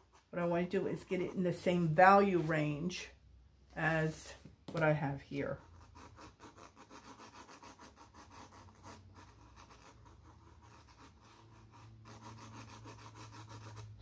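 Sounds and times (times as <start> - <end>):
pencil scratching on paper: 0.0 - 2.7, 5.4 - 14.0.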